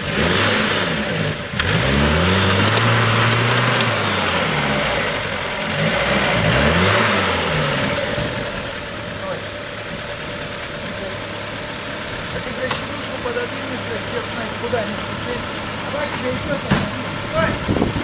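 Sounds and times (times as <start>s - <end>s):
engine revving up and down: 0.0s - 8.9s.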